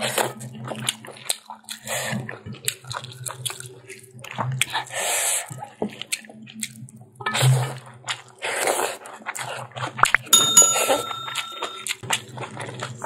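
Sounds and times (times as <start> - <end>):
wet chewing and mouth smacks: 0.6 - 7.0, 8.0 - 10.1, 12.1 - 13.0
short high ringing tone: 10.4 - 11.9.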